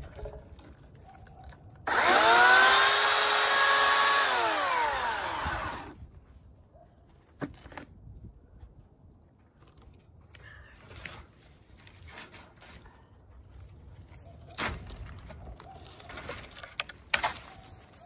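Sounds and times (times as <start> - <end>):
electric chainsaw motor whining: 1.8 - 6.0.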